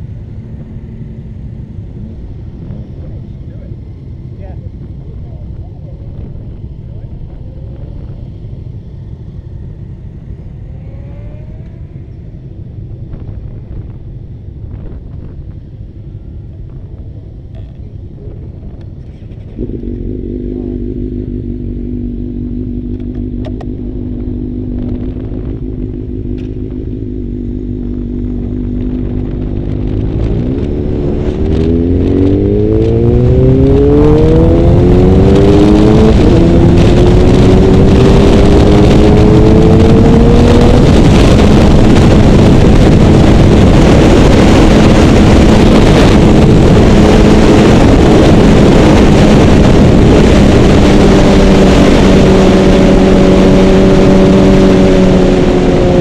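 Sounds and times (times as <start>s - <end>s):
wind rush on microphone: 0.0s - 8.7s, 9.6s - 20.3s, 23.0s - 56.0s
motorcycle engine revving: 0.0s - 56.0s.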